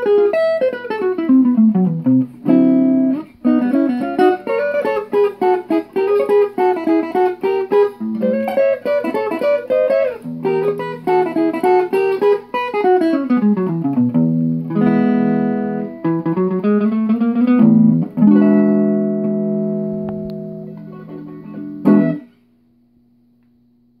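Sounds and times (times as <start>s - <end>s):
jazz guitar playing chords: 0.0s - 22.4s
faint steady hum: 17.6s - 24.0s.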